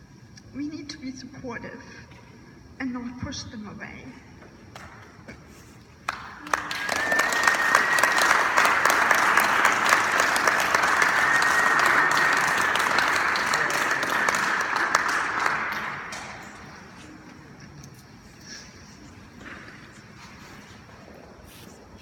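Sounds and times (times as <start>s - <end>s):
audience applauding: 6.0s - 17.2s.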